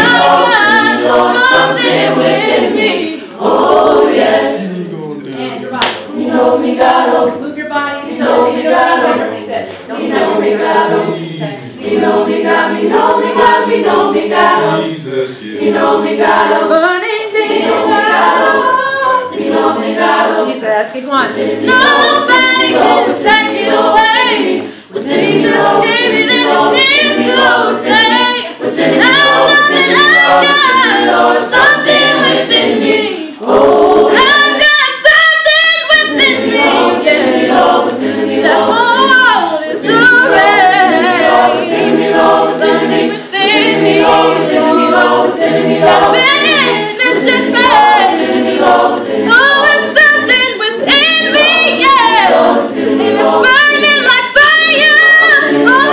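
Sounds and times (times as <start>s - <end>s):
choir singing a cappella: 0.0s - 55.9s
woman singing with vibrato: 4.2s - 14.6s, 16.2s - 37.2s, 49.1s - 52.4s, 53.2s - 55.9s.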